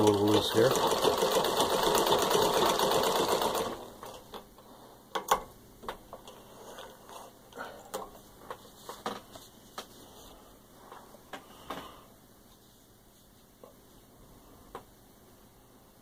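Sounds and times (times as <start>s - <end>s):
treadle sewing machine clattering: 0.0s - 4.4s.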